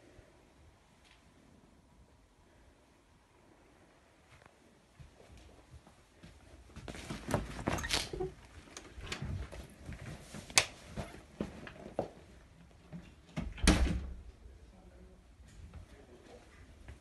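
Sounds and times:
footsteps on carpet: 0:04.3 - 0:07.6.

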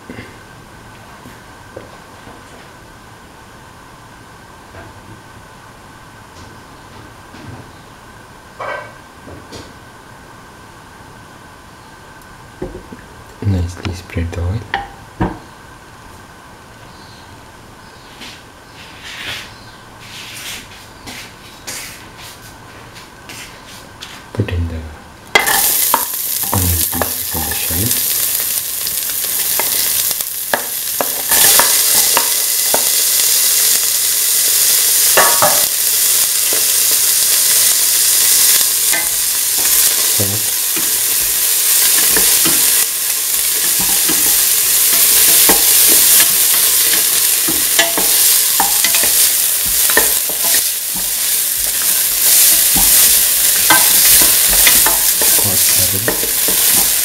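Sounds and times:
onions sizzling in hot oil: 0:24.5 - 0:57.0.

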